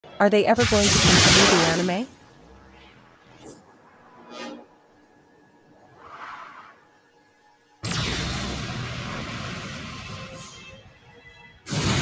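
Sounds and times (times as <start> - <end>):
sound effects blast: 0.6 - 2.0, 7.8 - 10.8, 11.7 - 12.0
fight music: 7.8 - 10.8, 11.6 - 12.0.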